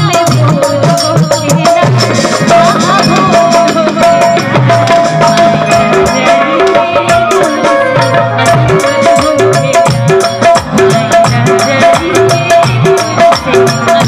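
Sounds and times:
hand-drum rhythm: 0.0s - 14.0s
woman singing into a microphone: 0.0s - 14.0s
band playing: 1.7s - 14.0s.

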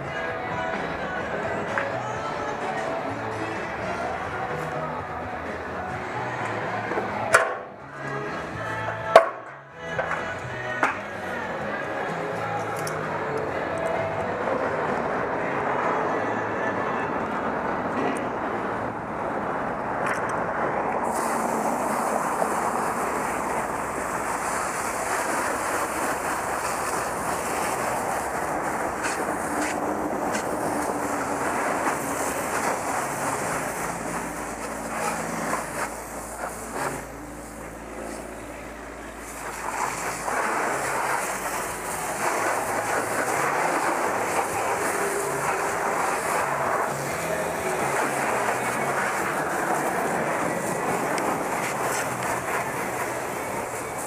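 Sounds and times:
pressure washer spray hissing: 21.0s - 38.4s, 39.1s - 54.0s.

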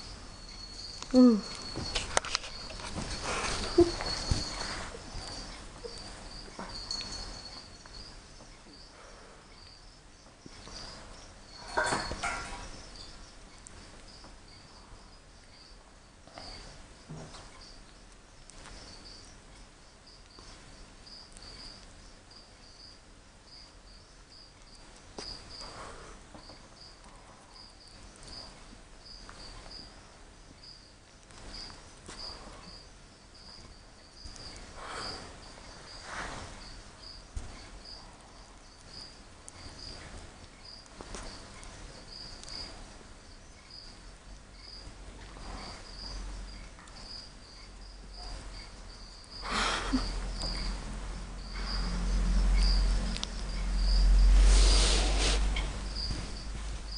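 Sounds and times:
faint high-pitched chirp: 0.0s - 3.0s
rustling: 0.0s - 8.6s, 31.1s - 43.1s
animal sniffing: 54.3s - 56.4s.

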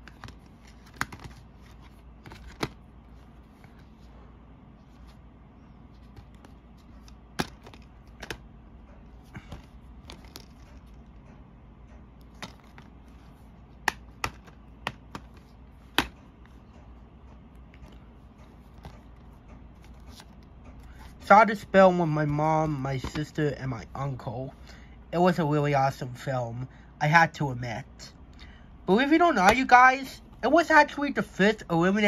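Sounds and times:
plastic cases opening and closing: 0.0s - 2.9s, 6.0s - 8.4s, 9.4s - 11.1s, 12.2s - 16.2s.

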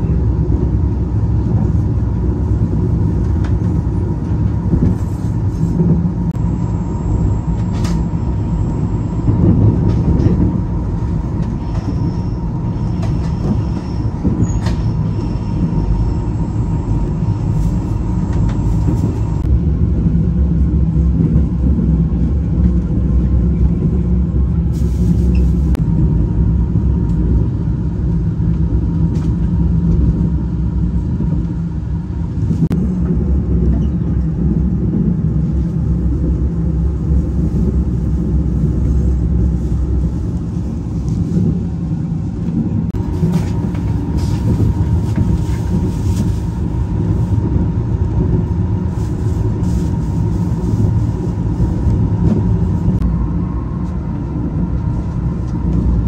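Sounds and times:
train carriage rumbling: 0.0s - 56.0s
thin steady whine: 6.3s - 13.0s.

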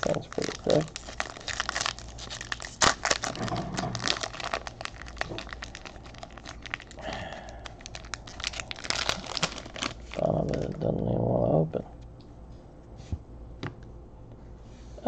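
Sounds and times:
plastic wrapper crinkling: 0.0s - 10.8s.

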